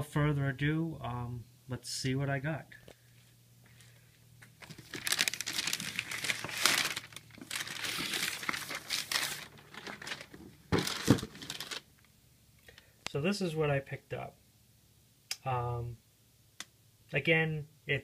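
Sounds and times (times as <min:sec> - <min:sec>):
plastic bag crinkling: 0:04.4 - 0:12.0.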